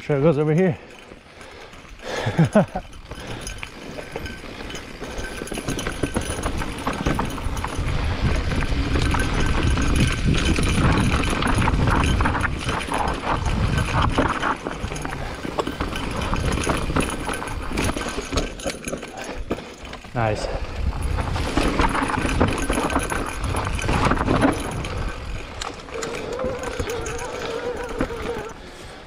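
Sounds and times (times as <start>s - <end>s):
bike tyres rattling over rock: 0.0s - 29.0s
wind rumble on microphone: 5.7s - 18.0s, 20.2s - 28.5s.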